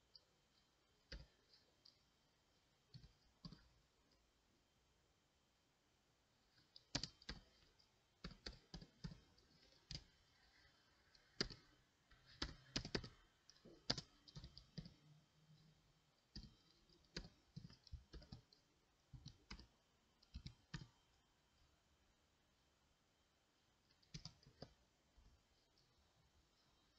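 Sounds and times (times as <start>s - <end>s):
keyboard typing: 1.0s - 2.0s, 2.9s - 4.2s, 6.5s - 21.1s, 23.9s - 24.8s.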